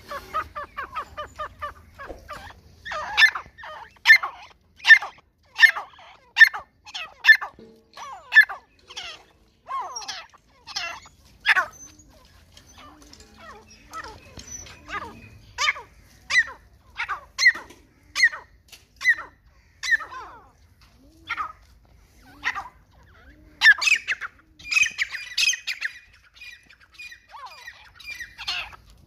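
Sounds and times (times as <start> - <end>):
francolin calling: 22.4 - 28.8.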